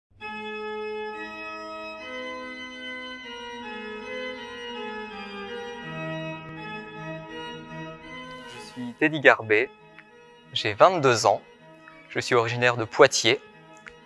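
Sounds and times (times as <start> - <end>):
pipe organ playing chords: 0.2 - 14.0.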